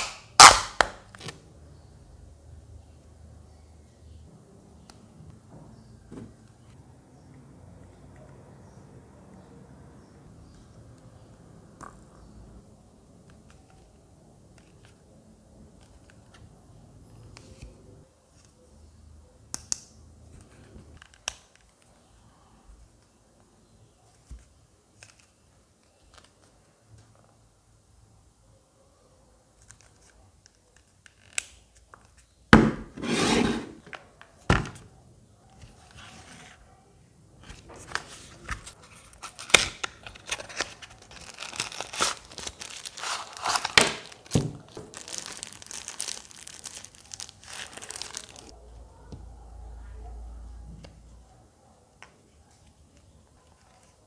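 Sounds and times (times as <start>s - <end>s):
packaging crinkling and rustling: 37.7s - 48.6s
cardboard box tearing and scraping: 41.2s - 43.9s.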